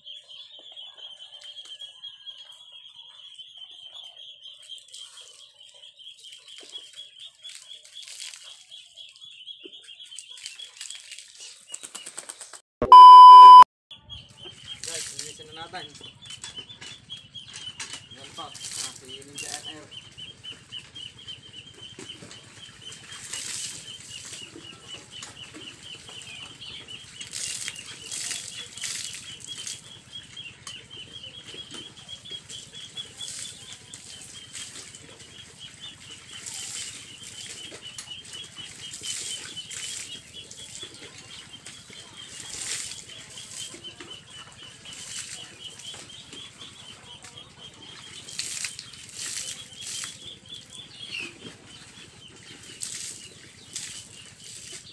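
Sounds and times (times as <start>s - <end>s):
water splashing and scrubbing: 6.4s - 8.8s, 14.7s - 15.5s, 17.9s - 19.9s, 21.9s - 30.1s, 31.5s - 46.6s, 47.6s - 54.9s.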